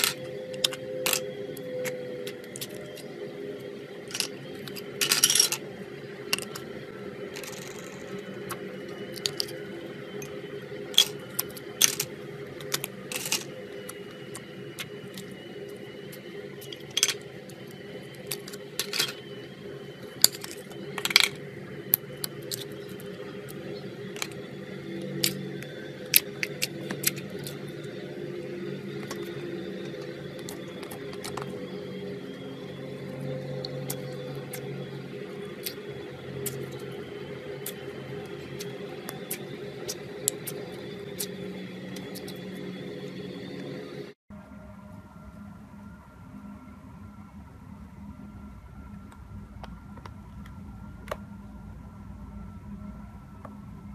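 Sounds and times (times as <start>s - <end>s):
steady low hum: 0.0s - 53.9s.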